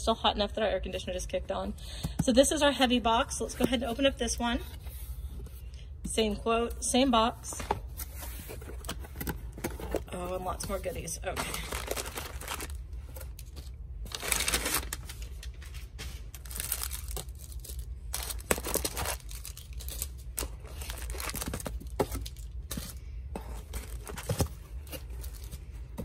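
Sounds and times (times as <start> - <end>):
air conditioner humming: 0.0 - 26.0
plastic and paper rustling: 7.4 - 26.0.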